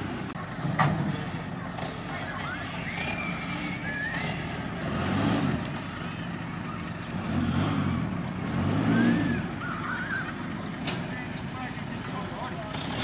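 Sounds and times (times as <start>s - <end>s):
steady outdoor hum: 0.0s - 13.0s
vehicle engine revving: 0.0s - 13.0s.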